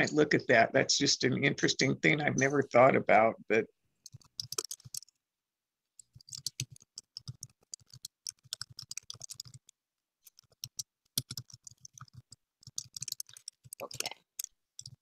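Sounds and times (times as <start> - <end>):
typing on computer keyboard: 4.0 - 5.1, 6.0 - 15.0.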